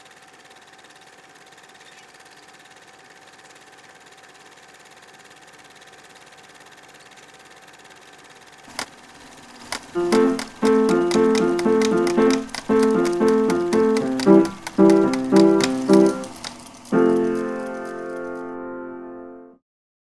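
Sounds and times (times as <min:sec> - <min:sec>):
small machine rattling and humming: 0:00.0 - 0:18.9
sharp clicks: 0:09.6 - 0:18.6.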